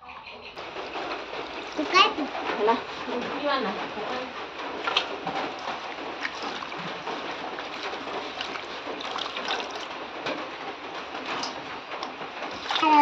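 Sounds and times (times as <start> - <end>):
water pouring into steel bowl: 0.8 - 3.1, 4.8 - 9.9.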